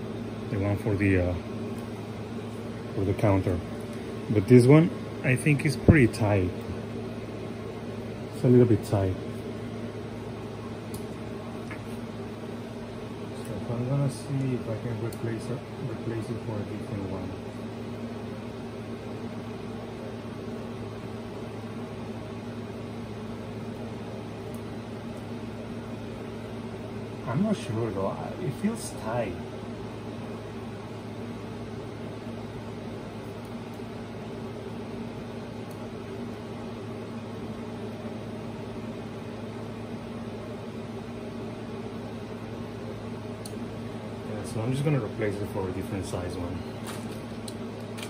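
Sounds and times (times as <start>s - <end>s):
low mechanical hum with hiss: 0.0s - 48.0s.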